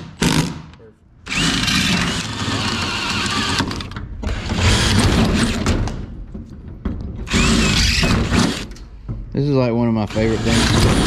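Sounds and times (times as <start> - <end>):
cordless drill boring through metal: 1.3 - 5.6, 7.2 - 8.7, 10.0 - 11.0.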